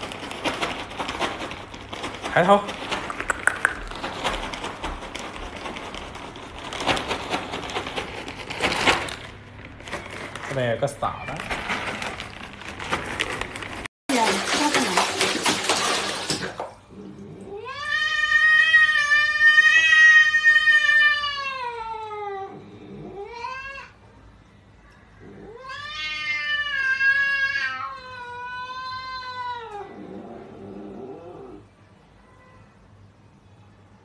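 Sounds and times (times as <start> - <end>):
cat yowling: 17.5 - 24.0, 25.2 - 30.1.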